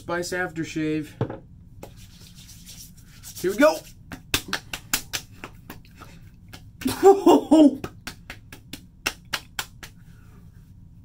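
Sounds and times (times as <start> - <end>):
palms slapping face: 1.8 - 2.0, 3.4 - 10.0
person exclaiming: 6.8 - 7.9.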